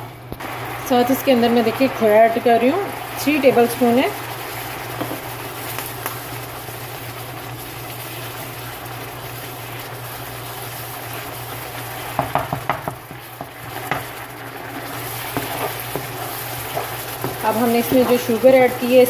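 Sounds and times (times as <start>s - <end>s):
mixture sizzling in a pan: 0.0s - 19.0s
spoon scraping a pan: 13.6s - 18.5s.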